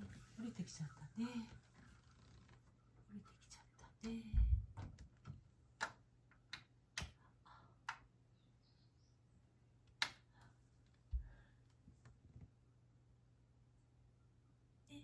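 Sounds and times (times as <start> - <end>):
dull low thump: 4.3 - 5.0.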